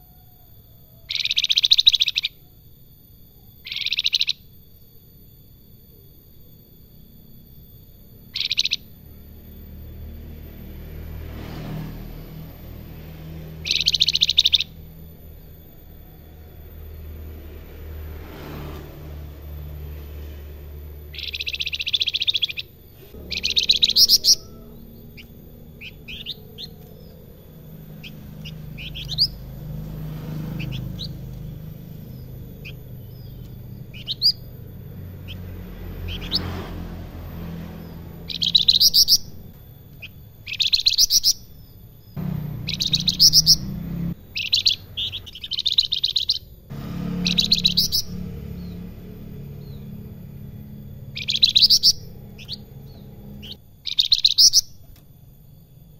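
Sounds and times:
bird rising whistle notes: 13.5 - 16.9, 21.1 - 29.6, 37.8 - 39.4, 47.0 - 48.8, 51.1 - 54.7
songbird rattling chatter: 21.1 - 36.6.

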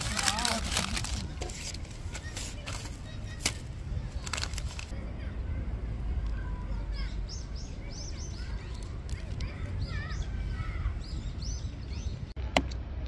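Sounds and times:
paper wrapper crinkling: 0.0 - 4.9.

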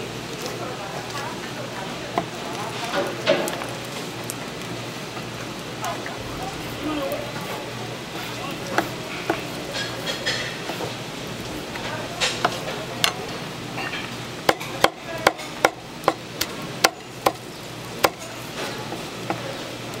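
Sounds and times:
knife chopping on wooden board: 8.7 - 10.9, 16.8 - 17.4, 18.0 - 19.4.

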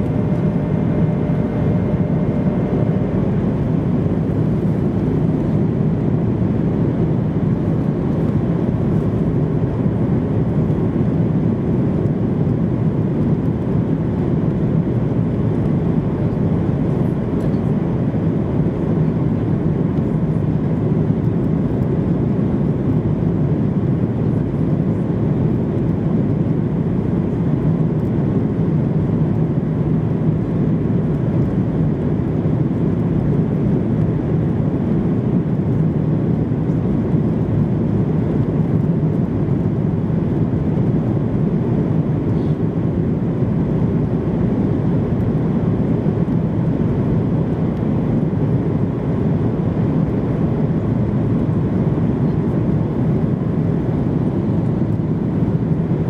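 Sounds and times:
airplane cabin rushing hum: 0.0 - 11.9.

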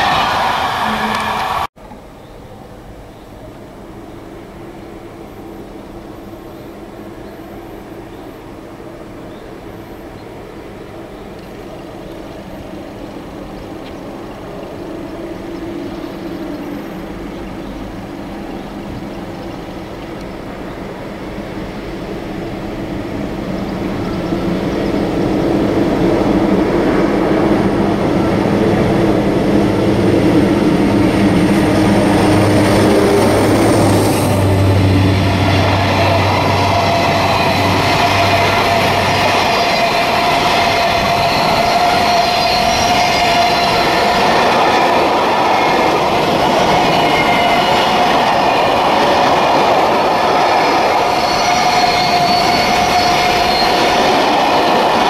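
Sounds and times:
electric locomotive hum: 0.0 - 55.0
high ringing tone: 4.9 - 8.6, 35.4 - 44.5, 50.9 - 54.3
train wheels clattering on rails: 21.7 - 55.0.

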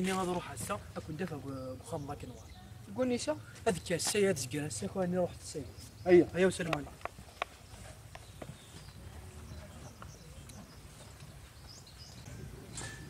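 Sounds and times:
footsteps on gravel: 0.0 - 1.1, 6.5 - 12.2
bird chirps: 0.8 - 13.0.

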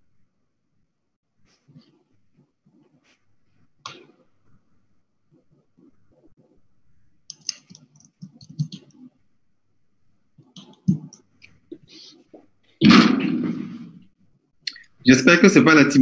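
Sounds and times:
faint clicks and taps: 7.2 - 9.2, 10.4 - 12.6.

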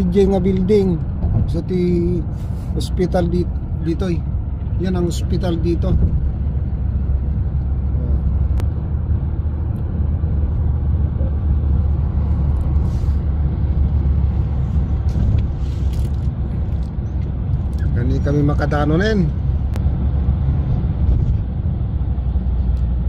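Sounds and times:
car road rumble and engine drone: 0.0 - 23.0.

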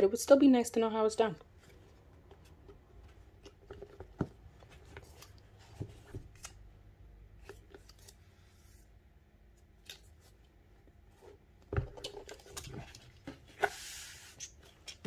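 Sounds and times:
books handled clicking and tapping: 1.4 - 6.7, 10.8 - 15.0.

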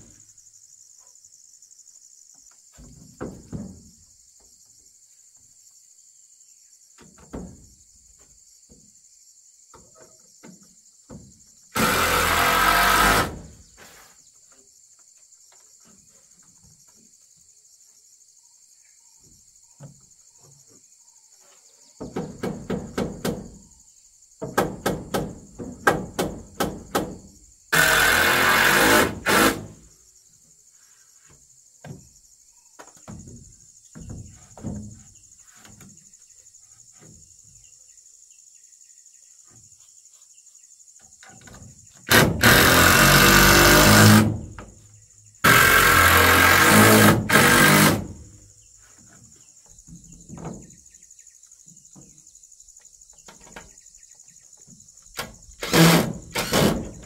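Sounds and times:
insects buzzing: 0.0 - 57.0
light knocks of boards and tools: 2.2 - 5.5, 6.9 - 9.0, 9.6 - 11.6, 19.2 - 23.7, 24.4 - 27.4, 31.2 - 36.2, 36.8 - 37.6, 40.9 - 42.1, 48.9 - 51.0, 51.6 - 55.6
cordless drill driving screws: 11.8 - 13.4, 27.8 - 29.6, 42.1 - 44.3, 45.5 - 48.1, 55.6 - 57.0.

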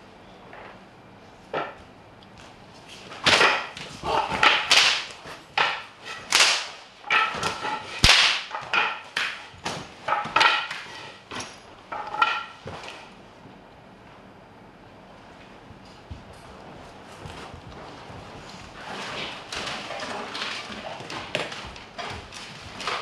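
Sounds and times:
whip lashes on concrete floor: 3.2 - 11.6.

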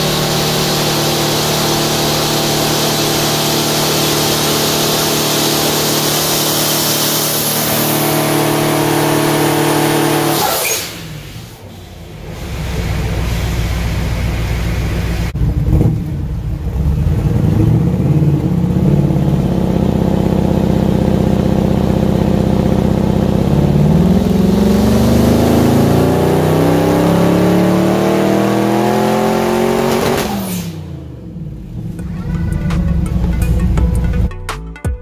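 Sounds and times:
car engine revving on dyno: 0.0 - 32.3.

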